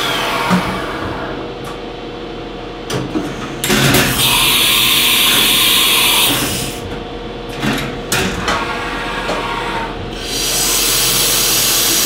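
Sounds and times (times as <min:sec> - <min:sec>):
machine humming: 0:00.0 - 0:12.0
coolant spray hissing: 0:10.3 - 0:12.0.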